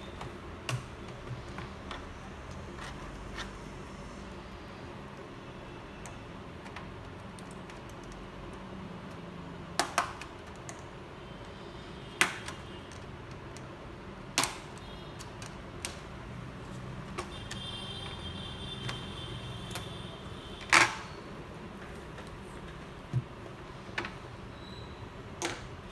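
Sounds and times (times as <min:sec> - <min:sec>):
plastic clips popping: 0:14.3 - 0:16.1.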